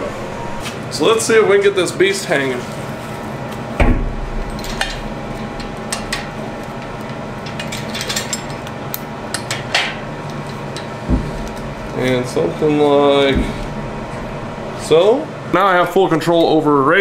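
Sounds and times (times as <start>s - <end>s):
steady low hum: 0.0s - 17.0s
dull thump: 3.8s - 4.5s, 11.1s - 11.5s, 13.3s - 13.8s
steel chain clinking and rattling: 4.4s - 5.6s, 7.4s - 8.6s.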